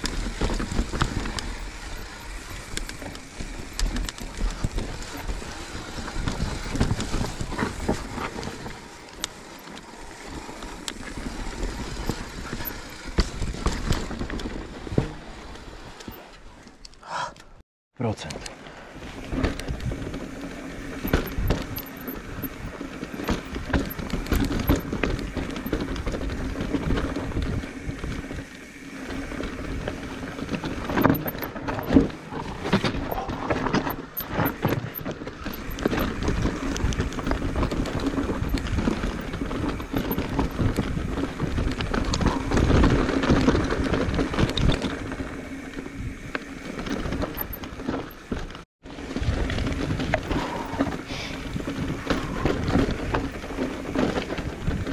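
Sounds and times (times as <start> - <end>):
bike knocking on rocks: 0.0 - 15.4, 19.2 - 54.9
tyres crunching over rocks: 0.0 - 15.7
bike rattling: 0.0 - 16.8, 18.7 - 54.9.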